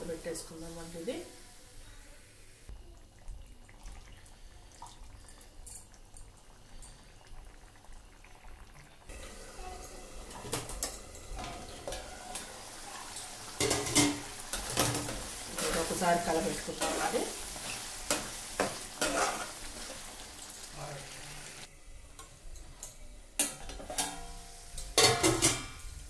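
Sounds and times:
curry simmering with faint sizzle: 0.0s - 26.0s
metal lid clinking: 23.4s - 26.0s.

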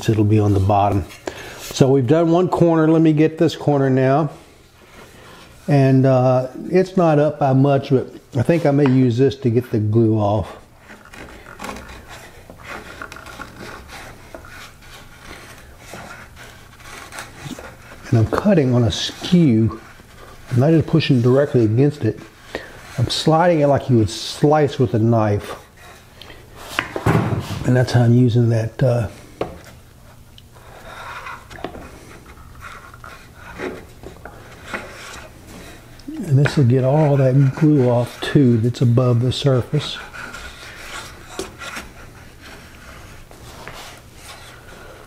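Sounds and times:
plane blade scraping wood: 10.8s - 26.9s, 30.6s - 45.0s.

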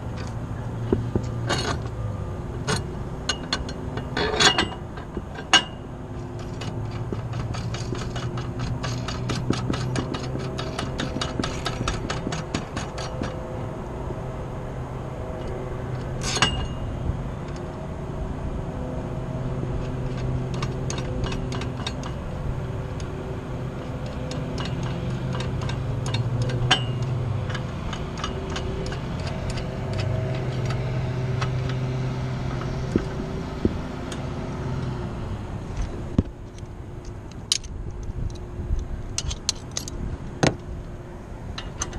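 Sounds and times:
low mechanical hum: 0.0s - 41.9s
metal gear clinking on steel: 5.4s - 13.4s.

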